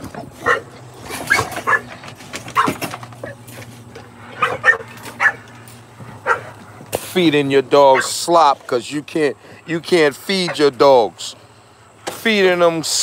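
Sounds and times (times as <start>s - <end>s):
dog barking: 0.4s - 0.7s, 1.3s - 1.9s, 2.6s - 2.8s, 4.4s - 5.4s, 6.2s - 6.5s, 7.9s - 8.2s.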